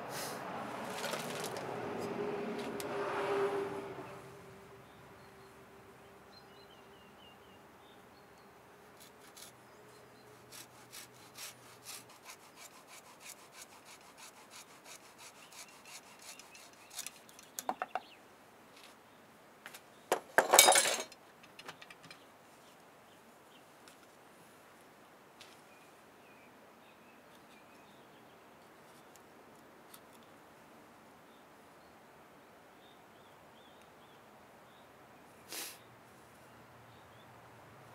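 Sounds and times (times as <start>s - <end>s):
clatter of wood and tools: 0.9s - 1.6s, 20.1s - 22.2s
coping saw cutting wood: 9.0s - 9.6s, 10.3s - 17.3s.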